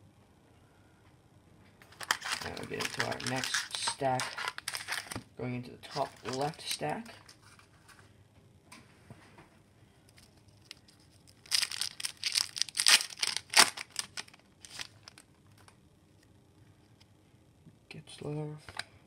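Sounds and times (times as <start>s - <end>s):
faint handling sounds: 1.1s - 17.2s
wrapper tearing and crinkling: 1.9s - 5.2s, 5.9s - 7.4s, 10.6s - 15.3s.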